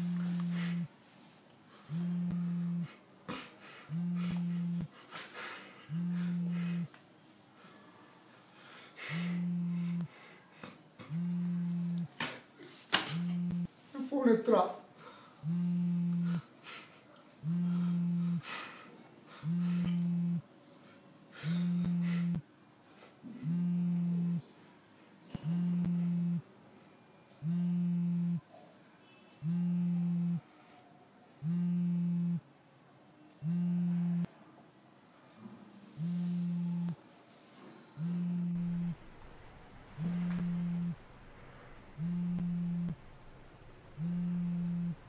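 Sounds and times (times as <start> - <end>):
telephone ringing tone beeps: 13.2 - 13.7, 40.0 - 41.0, 42.0 - 43.0.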